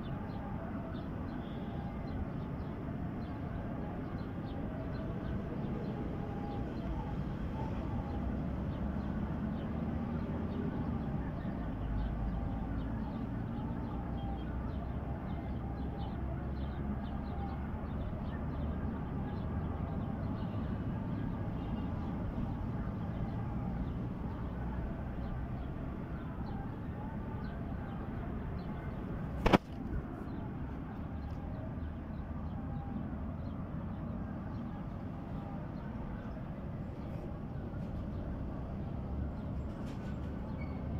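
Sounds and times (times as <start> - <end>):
sharp click: 29.4 - 29.9.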